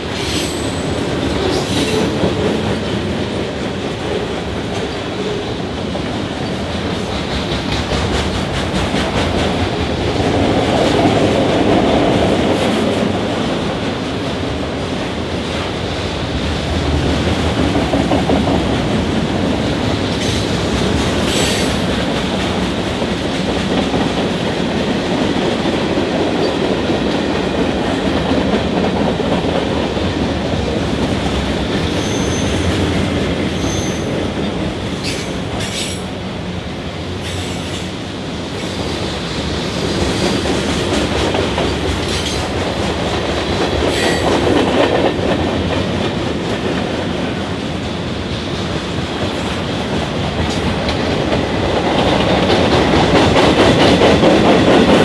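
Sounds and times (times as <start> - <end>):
train wheels rumbling: 0.0 - 55.0
high wheel squeals: 32.0 - 32.6.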